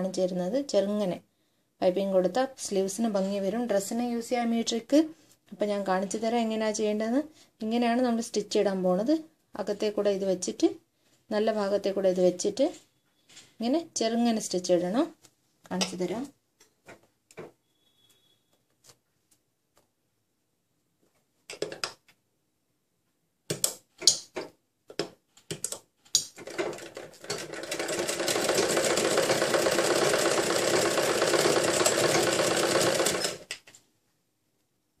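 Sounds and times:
sewing machine stitching: 26.4s - 33.6s.

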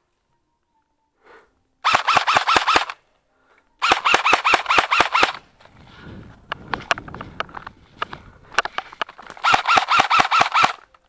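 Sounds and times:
airsoft rifle bursts: 1.8s - 3.0s, 3.8s - 5.4s, 6.7s - 11.0s.

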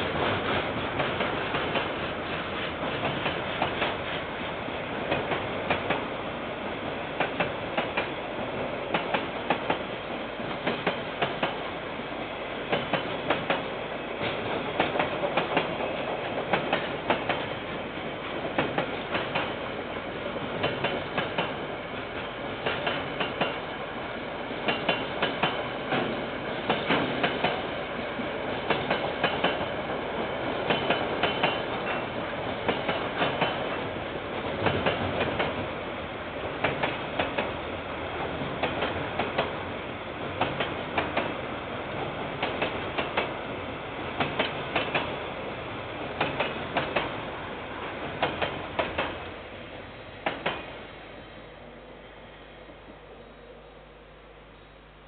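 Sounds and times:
wheels clacking over rail joints: 0.0s - 4.2s, 12.7s - 17.5s, 22.6s - 23.6s, 24.7s - 27.7s, 28.7s - 29.8s, 30.5s - 35.6s, 40.2s - 41.4s, 42.0s - 43.4s, 44.2s - 45.2s, 46.2s - 47.2s, 48.0s - 49.3s.

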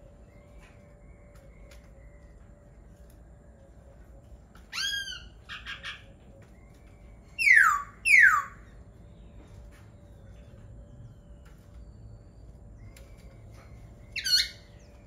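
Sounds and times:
bird calling with whistled notes: 4.7s - 9.5s, 11.3s - 15.0s.

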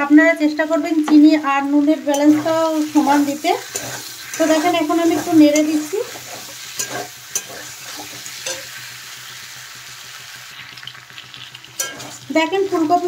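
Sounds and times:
food sizzling in hot oil: 0.0s - 13.0s
spatula scraping metal wok: 2.1s - 9.0s, 11.8s - 12.9s.

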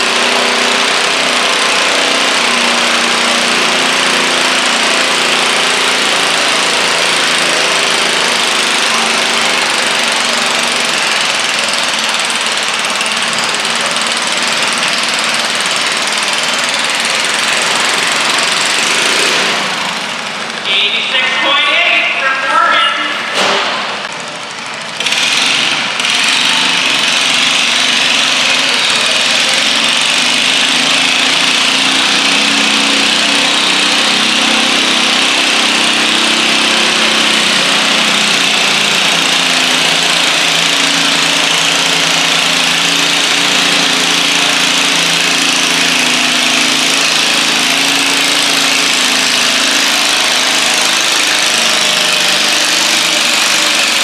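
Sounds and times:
tractor engine running hard: 0.0s - 54.0s.

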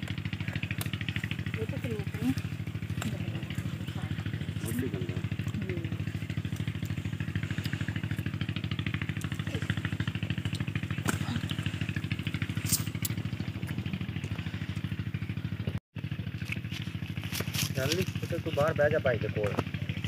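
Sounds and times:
engine idling: 0.0s - 20.0s
stalks snapping: 0.6s - 1.2s, 12.6s - 13.8s.

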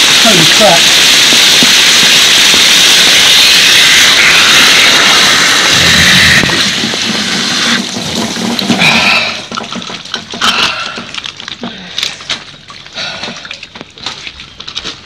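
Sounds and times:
water spraying from a pipe: 0.0s - 14.6s
water drips and splashes: 6.6s - 15.0s.

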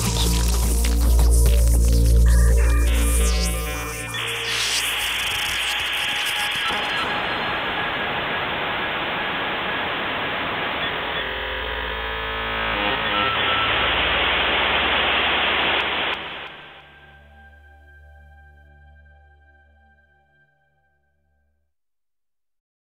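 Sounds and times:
loud electronic static noise: 0.0s - 17.5s.

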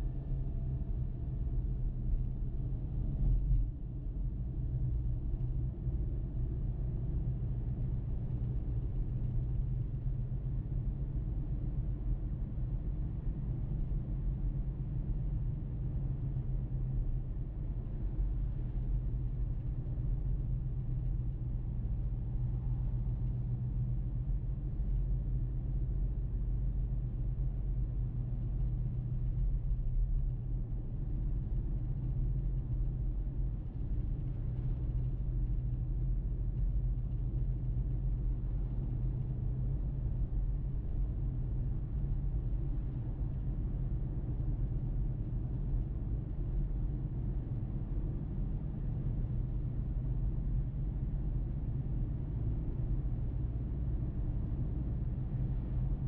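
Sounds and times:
car road and engine rumble: 0.0s - 56.0s.

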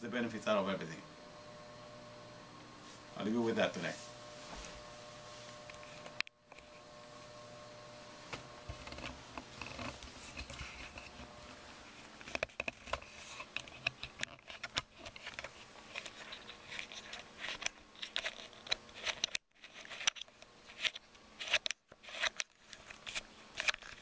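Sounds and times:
camera handling scratching and rustling: 5.5s - 6.9s, 8.6s - 24.0s
sharp clicks and crackles: 12.2s - 24.0s.

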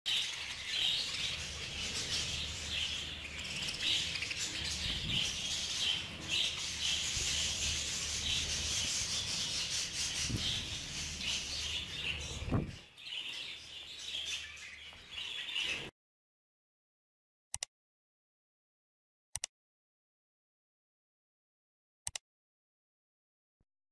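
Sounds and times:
budgerigars chattering and chirping: 0.1s - 15.9s.

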